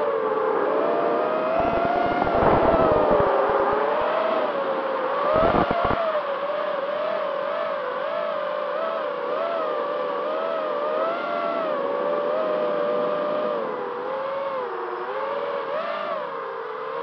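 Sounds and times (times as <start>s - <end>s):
quadcopter motors whining: 0.0s - 17.0s
low buffeting noise: 1.4s - 4.1s.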